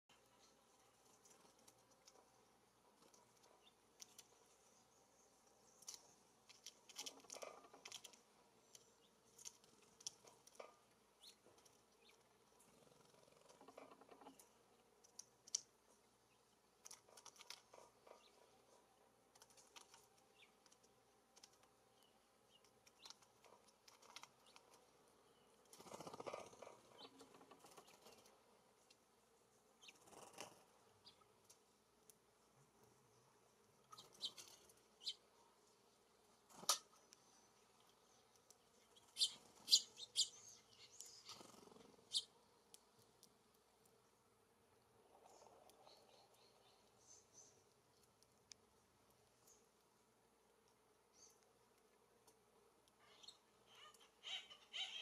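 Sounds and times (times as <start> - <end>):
bird pecking at a feeder: 0.2 - 15.9, 16.7 - 29.1.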